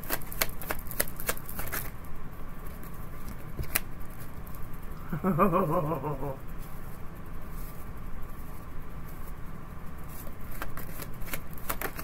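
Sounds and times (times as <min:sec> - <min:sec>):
cards shuffling clicks: 0:00.0 - 0:02.0, 0:02.7 - 0:04.6, 0:10.1 - 0:12.0
low steady hum: 0:00.0 - 0:12.0.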